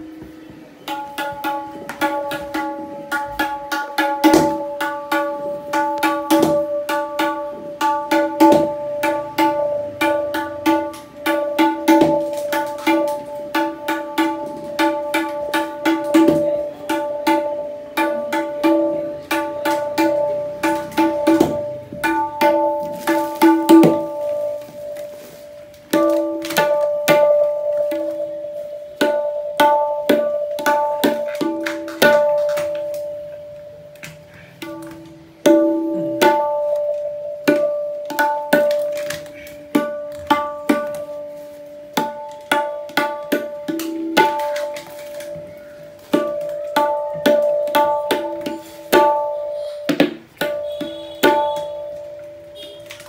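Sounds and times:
tabla drum strokes: 0.0 - 53.0.

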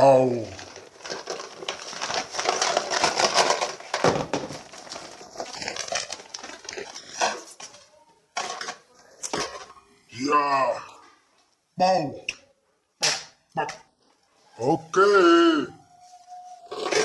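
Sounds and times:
dense rustling and crackling: 0.0 - 10.0.

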